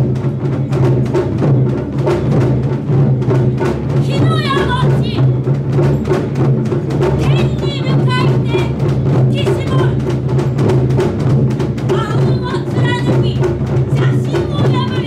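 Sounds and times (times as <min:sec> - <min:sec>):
barrel drums in fast rhythm: 0:00.0 - 0:15.0
performers shouting calls: 0:04.0 - 0:05.4, 0:07.2 - 0:10.2.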